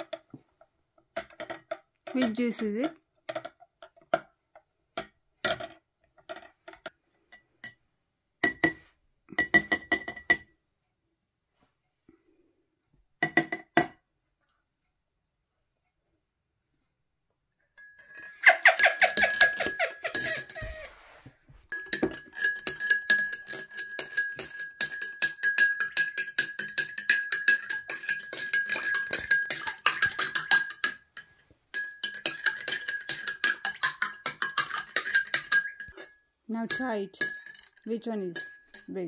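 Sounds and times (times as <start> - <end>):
spoon clinking in a glass: 9.3 - 10.5, 17.8 - 39.0.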